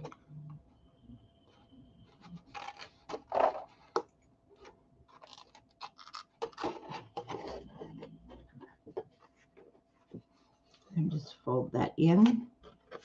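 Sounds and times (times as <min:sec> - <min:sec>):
cardstock rustling and scraping: 0:04.6 - 0:10.9, 0:12.6 - 0:13.0.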